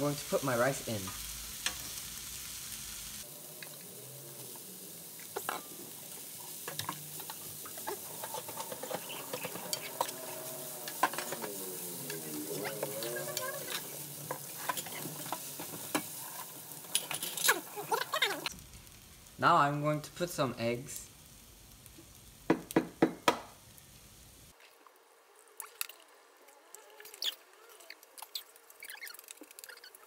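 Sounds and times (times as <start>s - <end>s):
food sizzling in a frying pan: 0.0s - 24.6s, 27.2s - 30.0s
spatula scraping a pan: 5.4s - 18.5s.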